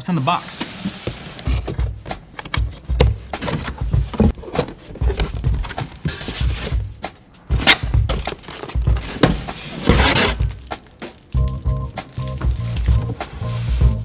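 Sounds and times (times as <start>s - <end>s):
cardboard scraping and rustling: 0.3s - 6.8s, 7.6s - 11.3s.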